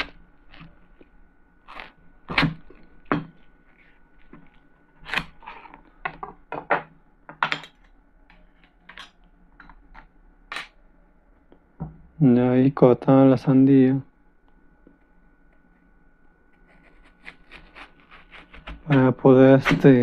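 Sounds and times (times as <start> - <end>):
knife crunching through watermelon: 0.0 - 2.9.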